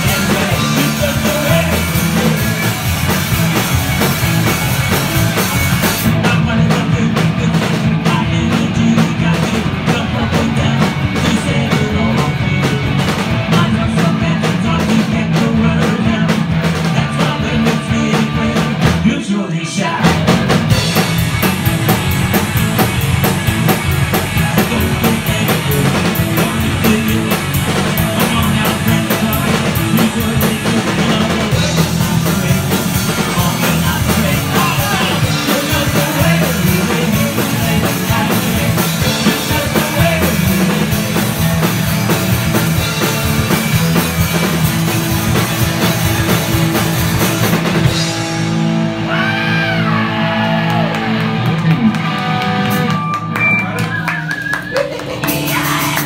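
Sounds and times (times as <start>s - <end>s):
person singing: 0.0s - 2.9s, 6.0s - 20.4s, 24.1s - 41.4s, 54.6s - 56.0s
punk rock band playing live: 0.0s - 56.0s.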